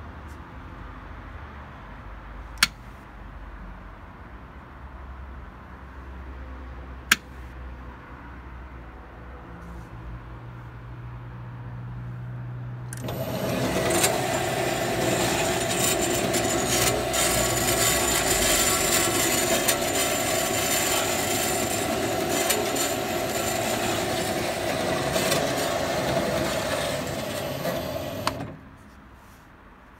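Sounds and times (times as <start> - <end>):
band saw running: 13.0 - 28.5.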